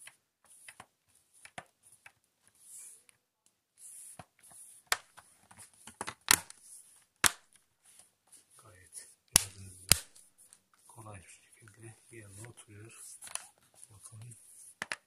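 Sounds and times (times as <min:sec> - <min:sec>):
plastic clips snapping into place: 0:09.3 - 0:10.2.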